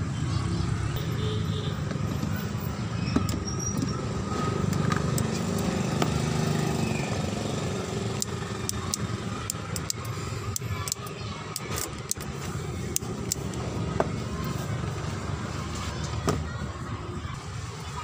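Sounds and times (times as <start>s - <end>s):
light clicks and ticks: 8.2s - 13.6s.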